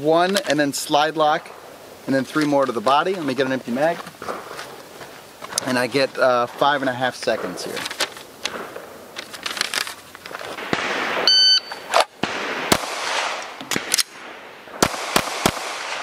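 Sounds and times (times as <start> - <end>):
pistol shots: 8.5 - 9.0, 10.6 - 16.0
shot timer beep: 11.3 - 11.8
magazine change clicks: 13.4 - 14.2.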